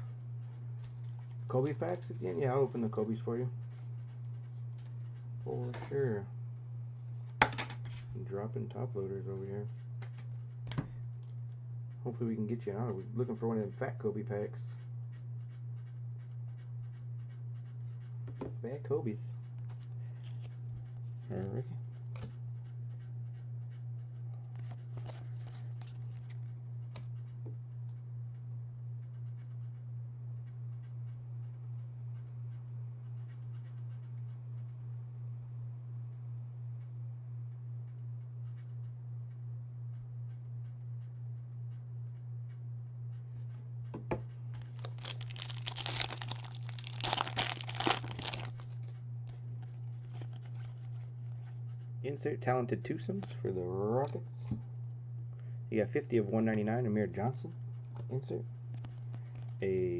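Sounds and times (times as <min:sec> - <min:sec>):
low hum: 0:14.3 - 0:59.9
trading cards flicking and rustling: 0:44.5 - 0:51.5
plastic wrapper crinkling and tearing: 0:44.6 - 0:51.1.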